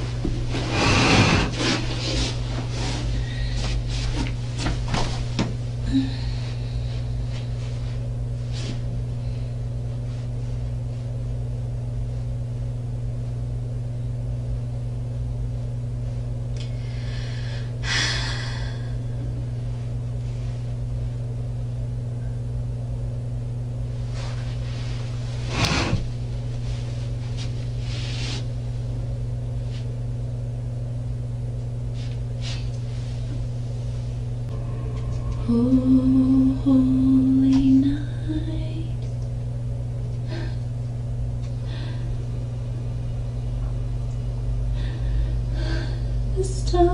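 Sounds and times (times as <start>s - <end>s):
person moving about: 0.0s - 5.6s
steady low hum: 0.0s - 46.9s.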